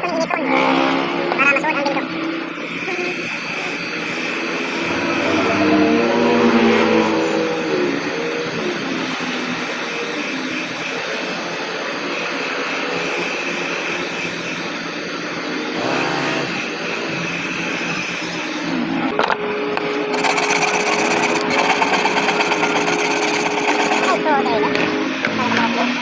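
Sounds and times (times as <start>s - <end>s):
steady hum: 2.4s - 8.9s, 20.0s - 24.3s
heat gun blowing: 20.1s - 24.2s.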